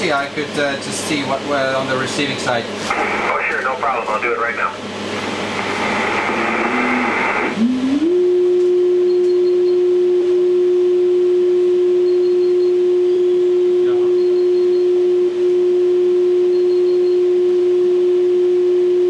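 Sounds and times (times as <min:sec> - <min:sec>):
radio receiver hiss: 0:02.8 - 0:07.6
steady radio carrier tone: 0:02.8 - 0:07.6.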